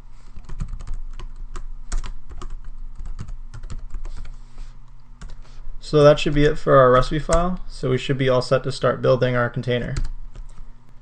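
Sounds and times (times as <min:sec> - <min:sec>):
keyboard typing: 0:00.4 - 0:04.4.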